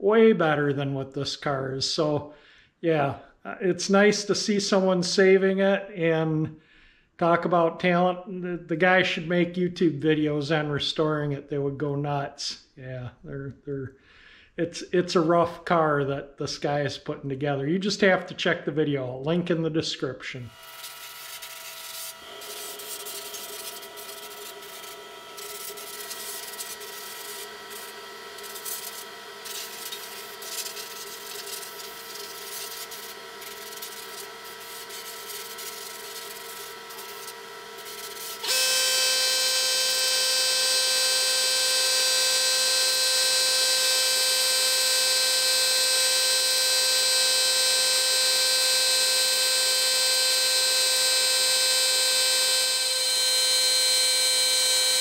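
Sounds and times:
air compressor humming: 20.5s - 55.0s
loud whining hum: 20.5s - 55.0s
spray gun hissing: 20.6s - 38.5s.

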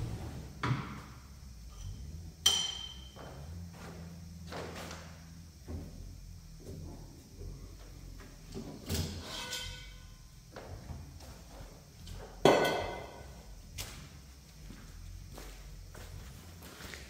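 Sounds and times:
ringing metallic clanks: 1.7s - 3.3s.

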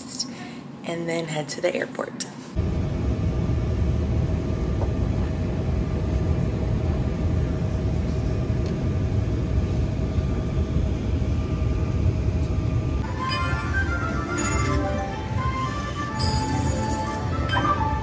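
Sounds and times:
faint steady hum: 0.0s - 18.0s
airliner engine rumble: 2.6s - 13.0s.

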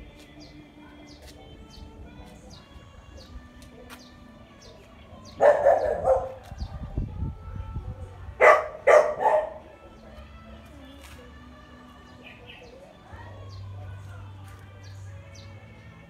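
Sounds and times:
dog barking: 5.4s - 6.5s, 8.4s - 9.7s.

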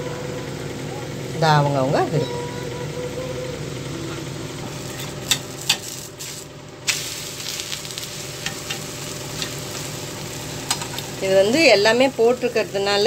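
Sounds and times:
dosa sizzling in oil: 4.7s - 13.0s.

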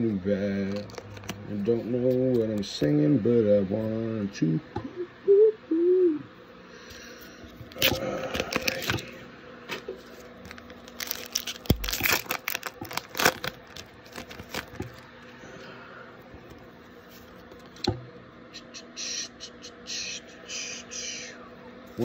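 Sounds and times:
foil wrapper crinkling and tearing: 0.6s - 1.6s, 7.7s - 9.1s, 10.1s - 15.1s.

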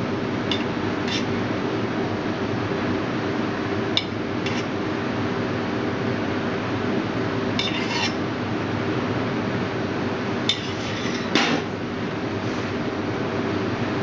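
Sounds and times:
spoon scraping metal saucepan: 0.5s - 1.3s, 7.6s - 8.2s, 10.5s - 11.4s.

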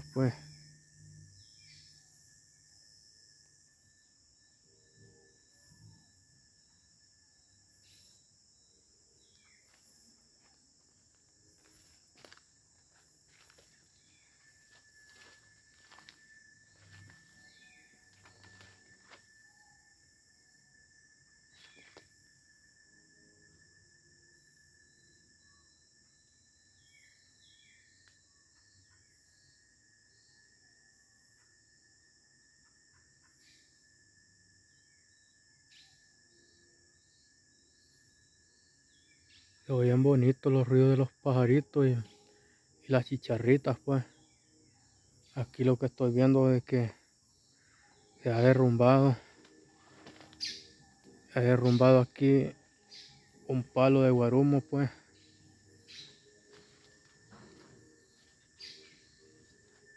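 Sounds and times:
insect chorus buzzing: 0.0s - 59.9s
footsteps on dry leaves: 11.6s - 19.2s.

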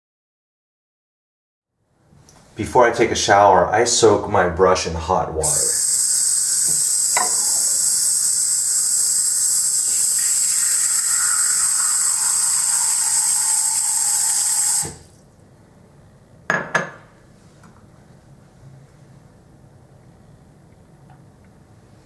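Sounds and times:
faucet running into bowl: 5.4s - 15.2s.

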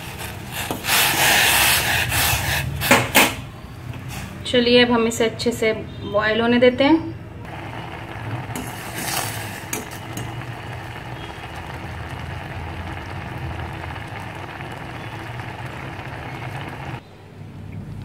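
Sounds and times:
water boiling in a pot: 0.0s - 3.1s, 7.5s - 17.0s.

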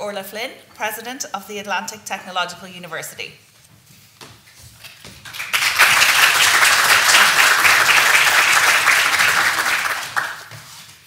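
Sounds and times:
audience applauding: 5.2s - 10.6s.

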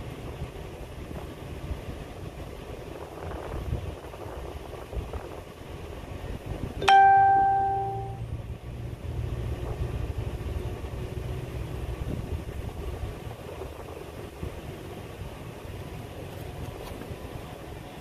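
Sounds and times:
metallic ding: 6.8s - 8.2s.

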